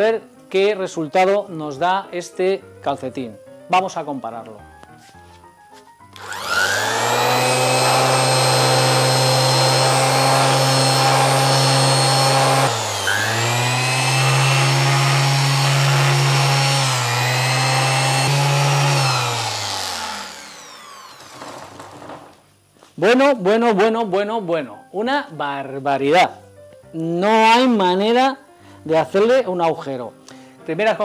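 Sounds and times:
electric sander running: 0:06.2 - 0:22.2.

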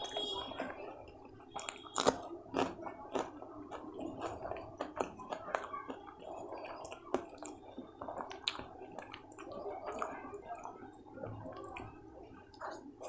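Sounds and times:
fingers tearing flatbread: 0:00.0 - 0:09.6.

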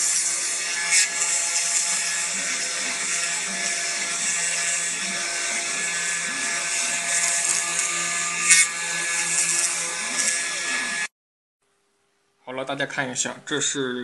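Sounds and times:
engraving machine spindle carving wood: 0:00.0 - 0:11.1.

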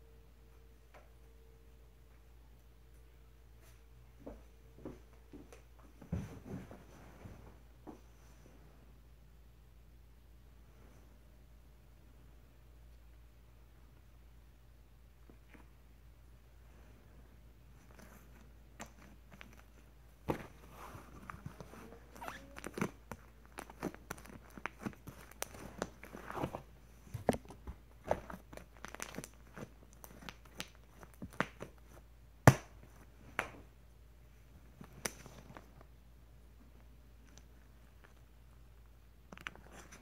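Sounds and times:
slime crackling and popping: 0:21.6 - 0:26.5, 0:27.2 - 0:31.8.

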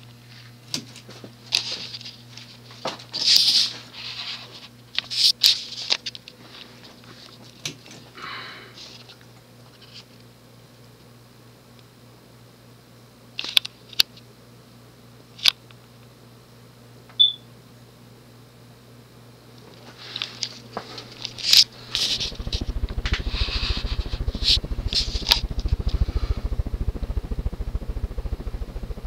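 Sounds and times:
ceiling fan humming: 0:00.0 - 0:29.0
air buffeting microphone: 0:21.7 - 0:29.0.

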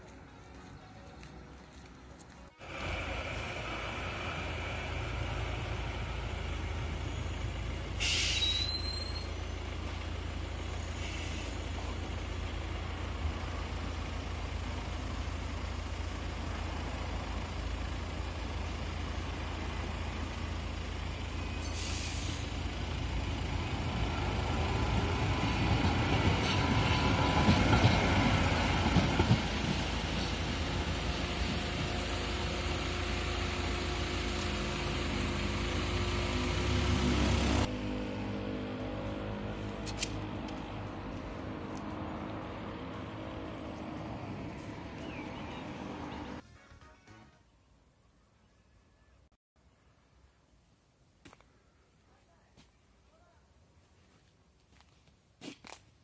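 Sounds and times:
tram running on rails: 0:00.0 - 0:46.4
air hisses: 0:08.0 - 0:08.7, 0:21.6 - 0:22.5.

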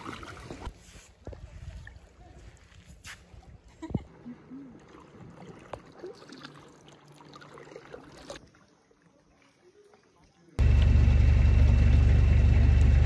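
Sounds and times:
water splashing and dripping: 0:00.0 - 0:00.7, 0:04.3 - 0:10.2.

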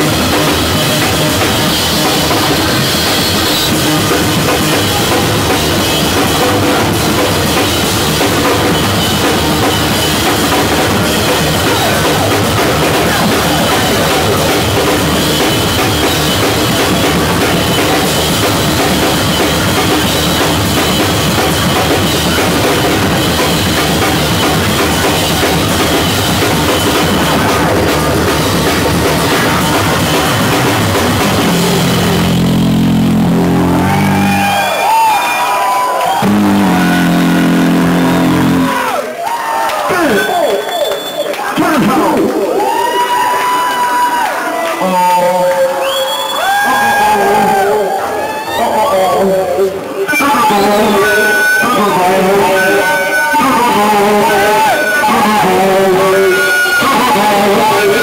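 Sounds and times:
distorted bass guitar: 0:00.0 - 0:35.3, 0:36.0 - 0:39.1, 0:49.8 - 0:58.0
drum kit pounding: 0:00.0 - 0:40.4.

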